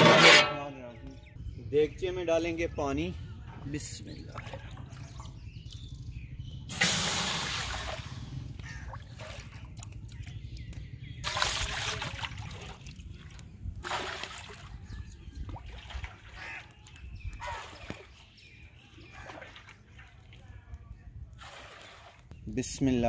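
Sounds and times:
water splashing into pot: 0:06.7 - 0:08.2.

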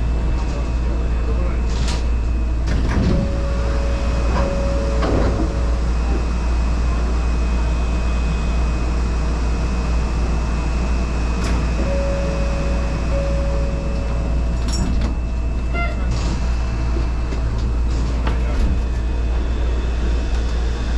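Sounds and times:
monorail low rumble: 0:00.0 - 0:20.9
motor tone: 0:02.9 - 0:09.0, 0:10.5 - 0:16.3
faint high whine: 0:11.7 - 0:14.8.

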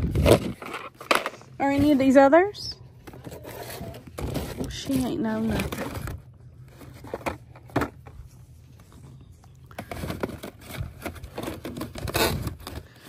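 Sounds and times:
low steady hum: 0:00.0 - 0:13.0
cardboard boxes shuffled and tapped: 0:09.7 - 0:12.9.

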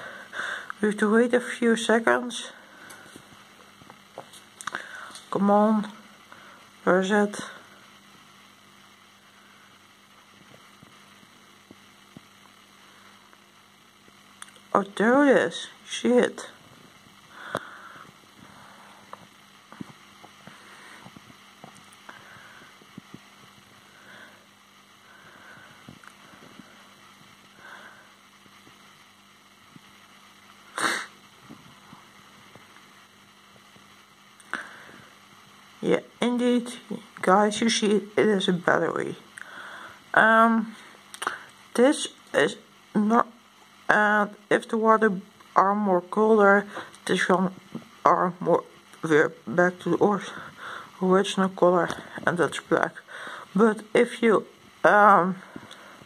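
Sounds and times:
faint room hiss: 0:00.0 - 0:56.0
low electrical hum: 0:00.0 - 0:56.0
sharp burst of breath: 0:30.7 - 0:31.2.

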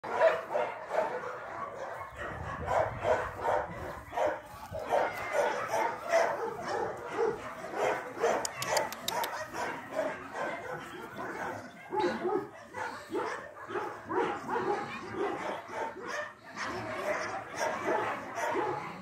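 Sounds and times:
dog yapping: 0:02.7 - 0:10.6.

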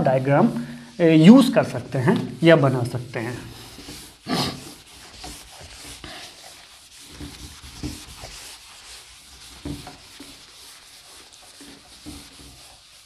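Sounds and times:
pen scratching on paper: 0:03.5 - 0:13.0.

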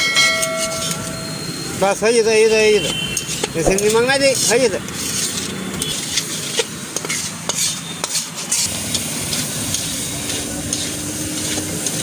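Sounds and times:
spatula scraping metal pan: 0:03.2 - 0:08.7
frying sizzle: 0:04.2 - 0:12.0.

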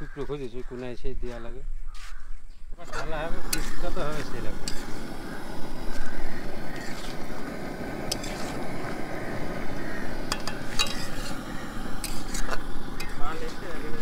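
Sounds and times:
food sizzling: 0:02.8 - 0:14.0
spatula scraping metal pan: 0:02.9 - 0:13.6.

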